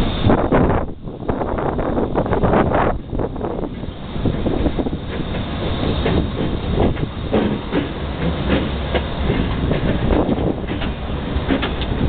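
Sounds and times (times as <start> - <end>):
diesel locomotive engine rumble: 0.0 - 12.0
wheel clatter on rails: 2.3 - 12.0.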